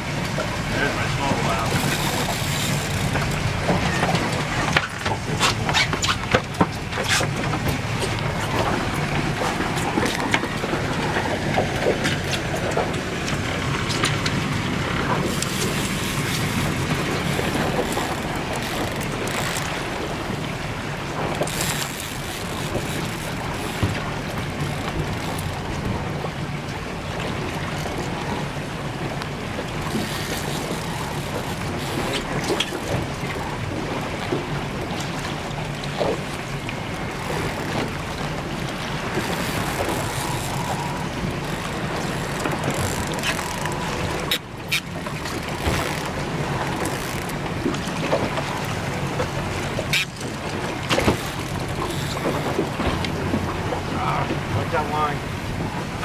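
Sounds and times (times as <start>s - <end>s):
boat engine running: 0.0s - 56.0s
water noise: 0.0s - 56.0s
wind: 0.0s - 56.0s.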